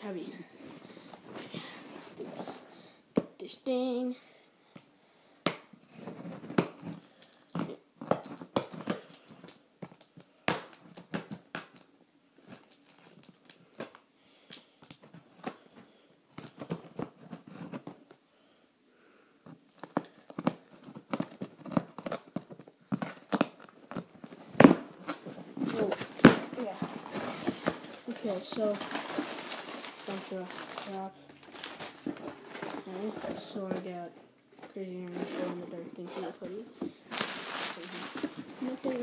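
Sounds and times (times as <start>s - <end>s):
cardboard tearing and crinkling: 19.7s - 33.9s, 35.1s - 39.0s.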